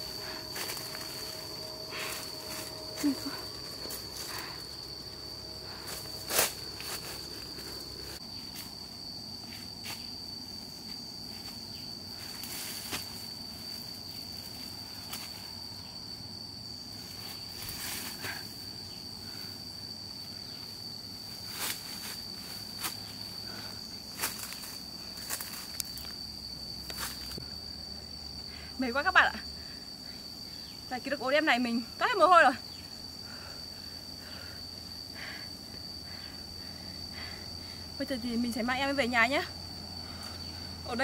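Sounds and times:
footsteps through undergrowth: 0.0 - 10.3, 21.4 - 26.2, 26.8 - 27.4
insects droning: 0.0 - 41.0.

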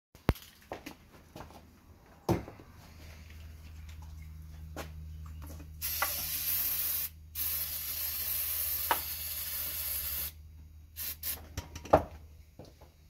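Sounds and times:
aerosol can spraying: 5.8 - 10.4, 11.0 - 11.4.

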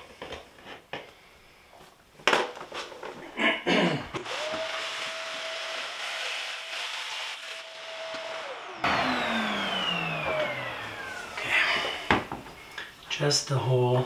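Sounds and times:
motor spinning down: 4.2 - 12.3
handheld vacuum cleaner whine: 4.2 - 12.7.

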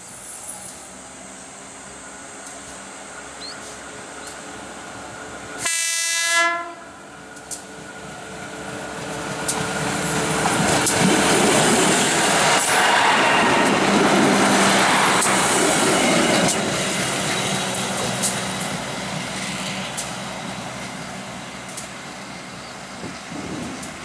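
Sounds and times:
train rumble passing: 0.0 - 24.0
train horn: 5.6 - 7.0
wheels clicking over rail joints: 9.0 - 12.8, 15.2 - 20.3, 21.6 - 22.0.

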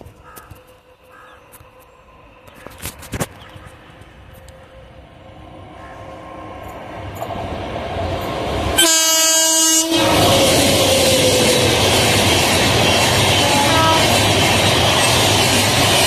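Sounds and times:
train rumbling and clattering past: 0.0 - 16.0
train horn: 8.8 - 11.8, 13.3 - 14.5.

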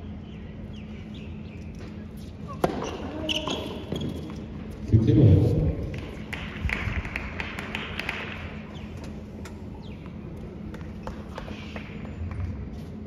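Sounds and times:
low rumble: 4.9 - 6.3.

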